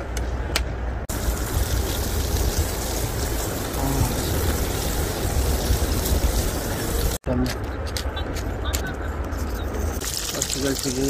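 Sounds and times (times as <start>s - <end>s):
wood fire crackling: 1.1s - 7.2s, 10.0s - 11.0s.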